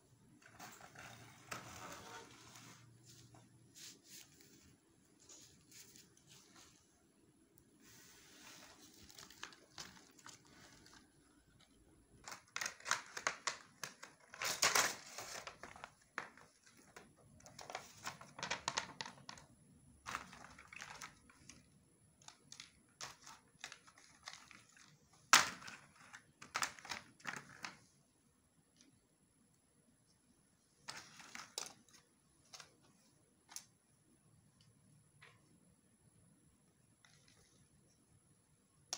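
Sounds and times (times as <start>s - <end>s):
plastic wrapping crinkling: 8.2s - 19.5s.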